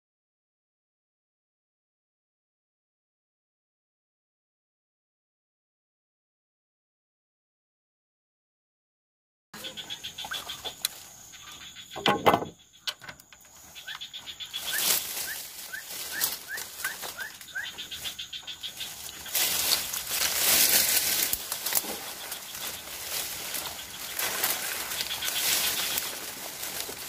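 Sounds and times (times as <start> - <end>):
bird chirping: 9.6 - 27.0
noisy rustling: 13.5 - 27.0.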